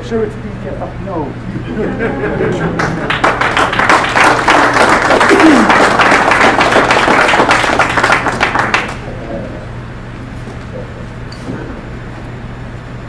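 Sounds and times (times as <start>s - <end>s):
audience applauding: 2.3s - 9.1s.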